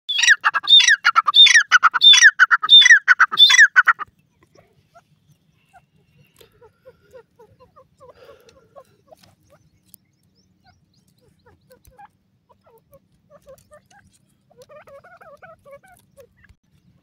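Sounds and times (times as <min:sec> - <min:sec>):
bird harsh repeated calls: 0:00.1 - 0:04.0.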